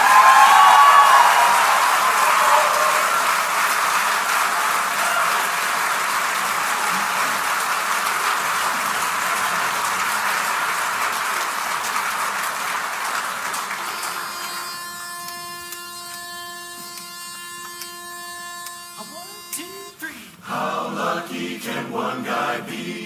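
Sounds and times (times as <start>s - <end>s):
audience applause: 0.0s - 14.8s
pitch pipe note: 13.8s - 20.1s.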